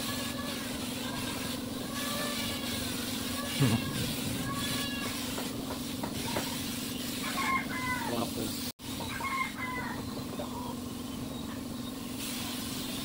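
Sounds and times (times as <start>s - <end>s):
spray gun misting: 0.0s - 9.0s, 12.0s - 13.0s
compressed air hum and hiss: 0.0s - 13.0s.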